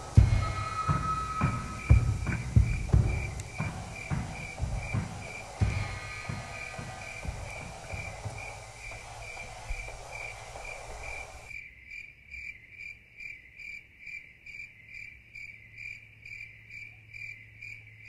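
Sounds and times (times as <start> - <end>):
faint low hum: 0.0 - 11.5
rough noisy background: 0.0 - 11.5
cricket chirping: 0.0 - 18.0.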